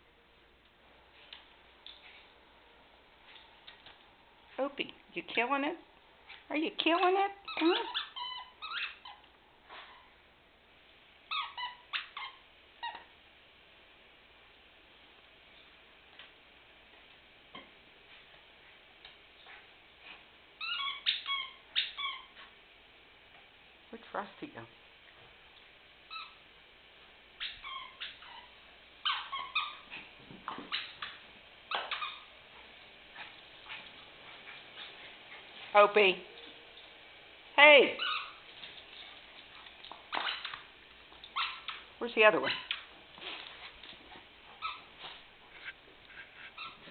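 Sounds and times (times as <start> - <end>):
squeaky dog toy squeaking: 7.4 - 9.2, 20.6 - 22.3, 27.4 - 29.8, 38.0 - 38.4
small dog whimpering: 7.5 - 10.1, 27.4 - 31.1, 46.4 - 46.9.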